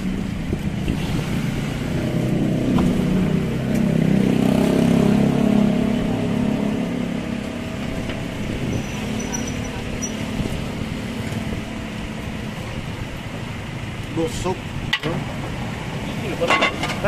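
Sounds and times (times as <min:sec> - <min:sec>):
vehicle engine passing by: 0:00.0 - 0:13.2.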